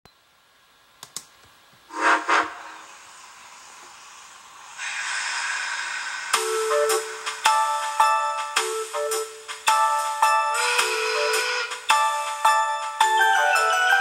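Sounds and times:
clicks: 0:01.0 - 0:01.6
steam locomotive whistle blasts: 0:01.9 - 0:03.7, 0:04.8 - 0:09.3, 0:10.5 - 0:12.2
hiss of escaping steam: 0:01.9 - 0:09.4
music: 0:05.9 - 0:14.0.

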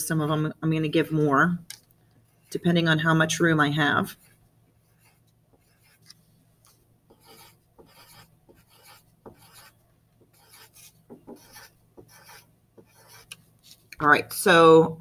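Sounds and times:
pencil scratching on paper: 0:04.0 - 0:13.9.

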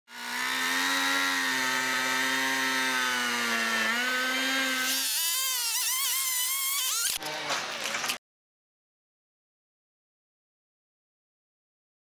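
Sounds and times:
chainsaw cutting wood: 0:00.1 - 0:08.2.

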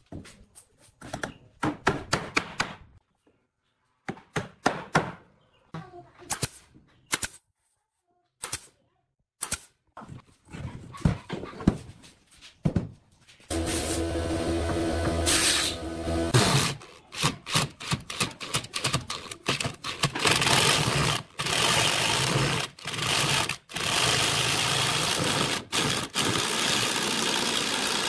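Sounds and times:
nail gun shots: 0:06.3 - 0:07.4, 0:08.4 - 0:08.7, 0:09.4 - 0:09.8.

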